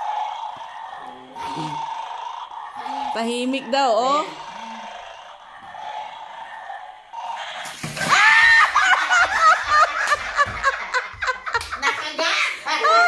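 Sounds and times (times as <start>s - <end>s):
high-pitched startled shriek: 7.1s - 8.8s
people laughing loudly: 8.1s - 13.0s.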